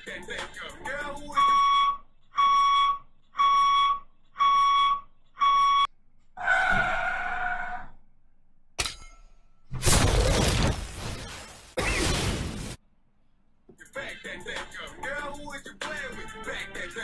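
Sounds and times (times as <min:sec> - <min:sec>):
vehicle reversing alarm beeping: 0:01.3 - 0:05.9.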